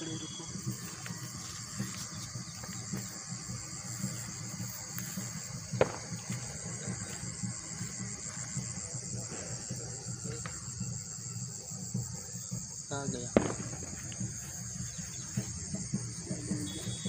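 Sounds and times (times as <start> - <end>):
crickets chirring: 0.0 - 17.0.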